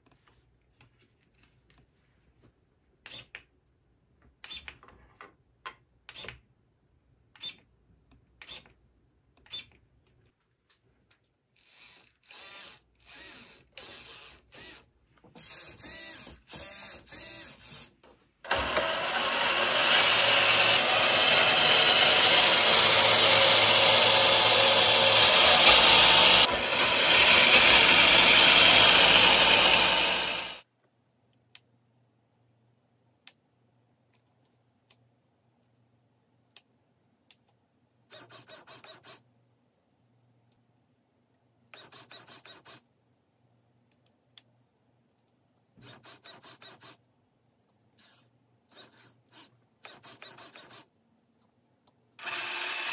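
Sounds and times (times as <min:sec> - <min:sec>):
electric motor whirring: 0:11.6 - 0:17.9, 0:18.5 - 0:30.6, 0:52.2 - 0:52.9.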